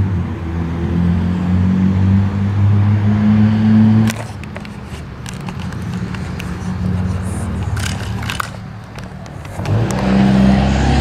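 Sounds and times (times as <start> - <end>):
loud low engine drone: 9.5 - 11.0.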